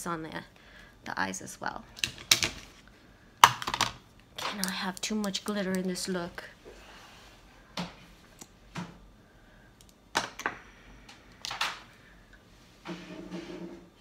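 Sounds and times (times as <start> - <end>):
makeup packaging clicks: 3.4 - 6.0.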